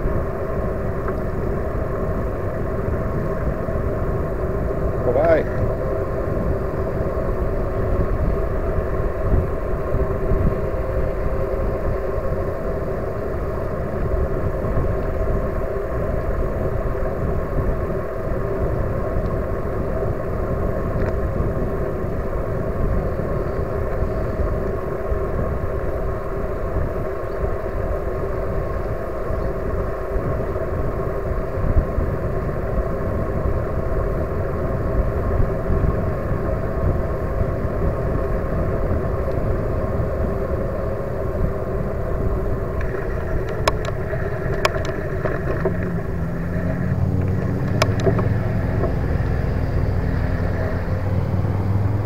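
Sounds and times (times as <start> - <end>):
electric motor whine: 0.0 - 52.0
tyres rolling on asphalt: 0.0 - 52.0
wind rushing over microphone: 0.0 - 52.0.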